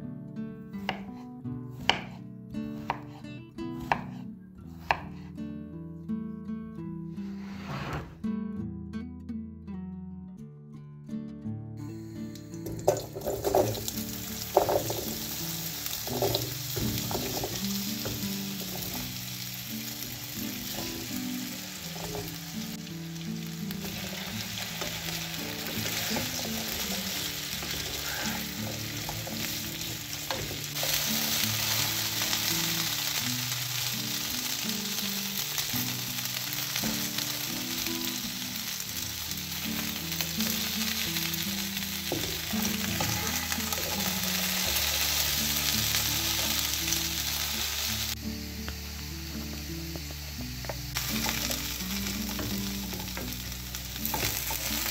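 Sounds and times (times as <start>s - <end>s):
potatoes sizzling in frying pan: 12.4s - 54.9s.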